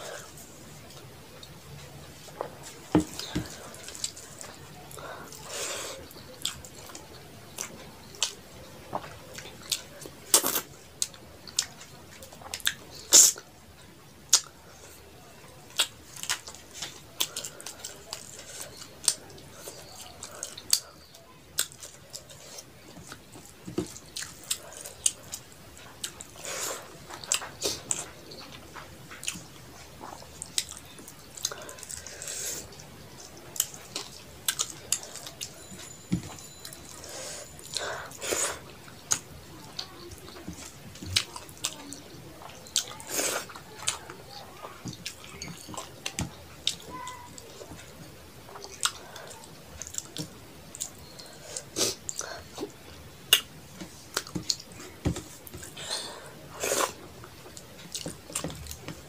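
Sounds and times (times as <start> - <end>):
wet chewing: 15.7 - 59.0.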